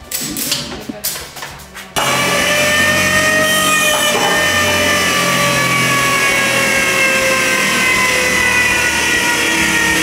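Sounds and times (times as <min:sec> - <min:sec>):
electric motor whine: 0:02.0 - 0:10.0.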